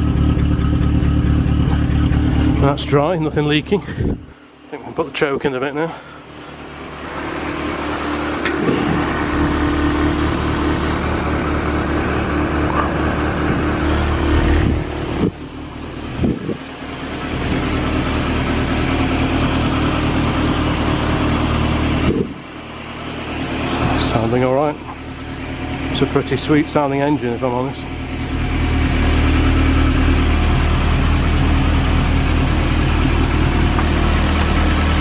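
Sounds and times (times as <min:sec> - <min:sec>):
car engine idling: 0:00.0 - 0:35.0.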